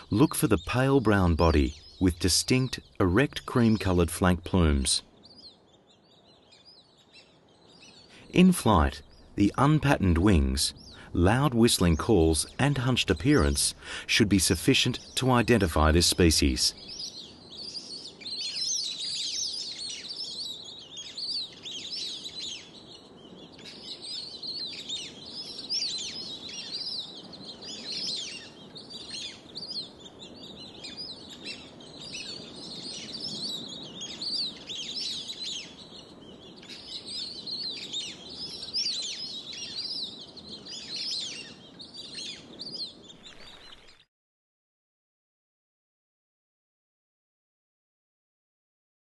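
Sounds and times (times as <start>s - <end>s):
whistling ducks calling: 0.0s - 3.0s.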